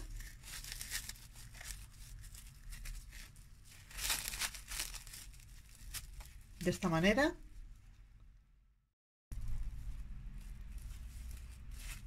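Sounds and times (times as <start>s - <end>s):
plastic cling film crinkling: 0.0s - 6.8s, 9.9s - 12.0s.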